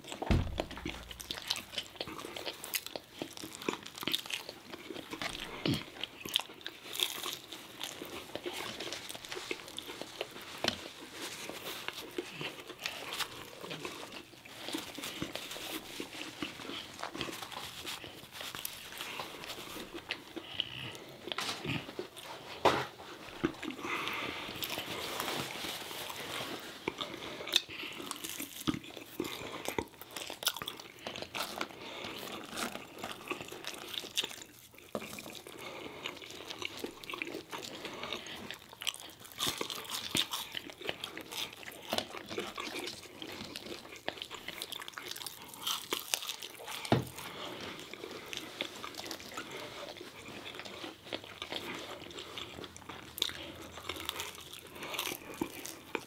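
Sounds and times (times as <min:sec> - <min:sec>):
crunchy food chewing: 0:00.0 - 0:56.0.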